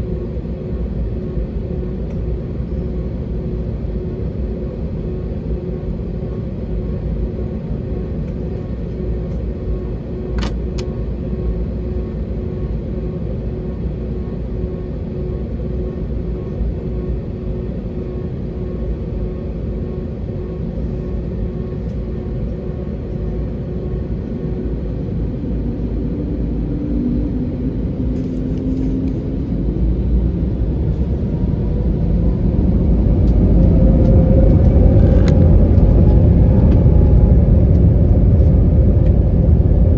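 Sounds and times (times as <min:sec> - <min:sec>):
jet engines rumbling: 0:00.0 - 0:39.9.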